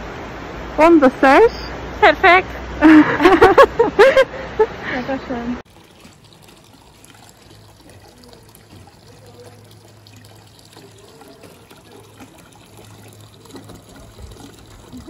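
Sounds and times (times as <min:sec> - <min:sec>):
water trickling into basin: 0:05.3 - 0:15.0.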